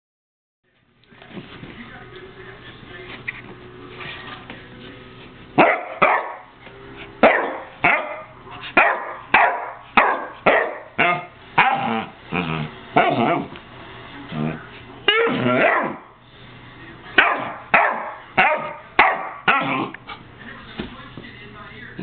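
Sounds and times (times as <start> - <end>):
dog barking: 5.6 - 6.5, 7.2 - 11.9, 13.0 - 13.5, 15.1 - 16.1, 17.2 - 19.9.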